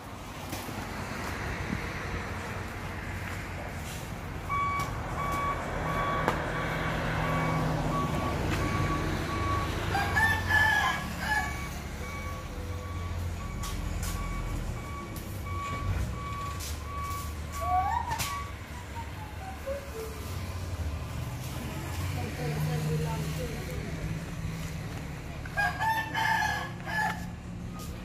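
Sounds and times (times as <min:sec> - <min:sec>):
truck engine running low: 0:00.0 - 0:25.8
truck reversing alarm beeping: 0:04.4 - 0:21.2, 0:26.4 - 0:28.0
rooster crowing: 0:09.9 - 0:11.7, 0:25.5 - 0:27.3.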